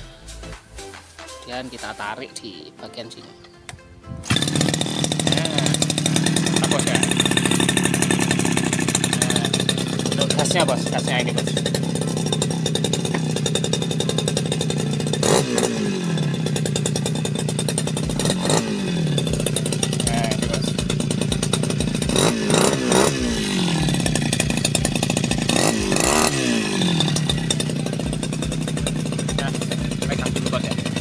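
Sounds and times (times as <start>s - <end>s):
brush cutter engine idling and revving: 4.2s - 31.0s.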